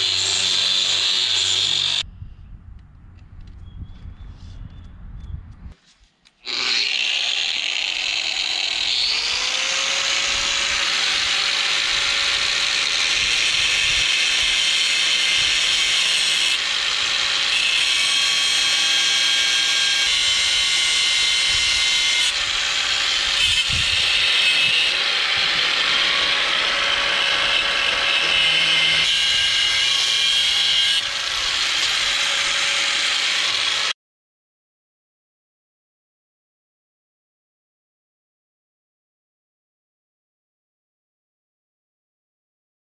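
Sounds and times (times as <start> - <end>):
angle grinder grinding steel: 0.0 - 2.0, 6.4 - 34.0.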